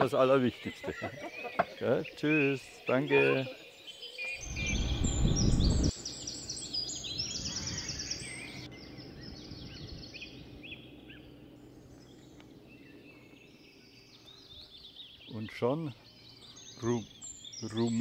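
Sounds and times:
outdoor background noise: 0.0s - 18.0s
small birds chirping: 0.0s - 18.0s.

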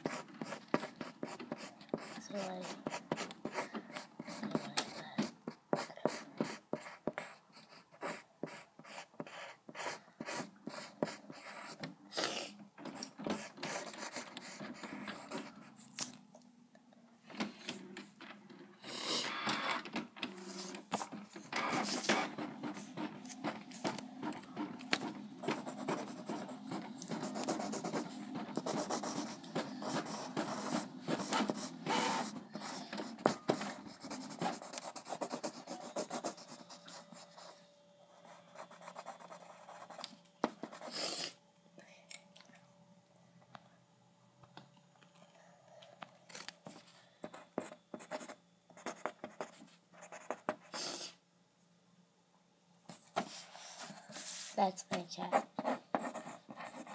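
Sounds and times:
pen scratching on paper: 0.0s - 15.6s, 20.4s - 37.6s, 38.2s - 41.3s, 47.3s - 51.1s, 55.3s - 56.9s.

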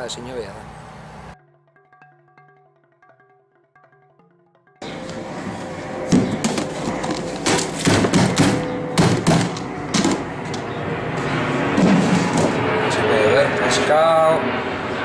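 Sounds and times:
plastic caddy knocking against bin: 6.1s - 10.2s.

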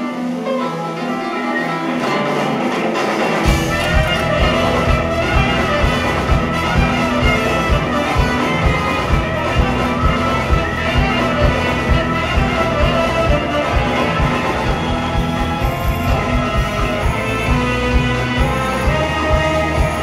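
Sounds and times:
trumpets and saxophone melody: 0.0s - 20.0s
drums steady beat: 2.4s - 20.0s
electric bass: 3.4s - 20.0s.

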